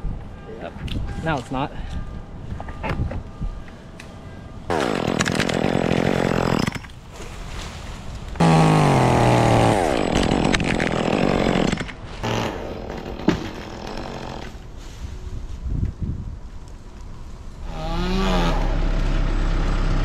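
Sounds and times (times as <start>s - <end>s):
chainsaw cutting and idling: 4.7s - 6.8s, 8.4s - 14.6s, 17.6s - 20.0s.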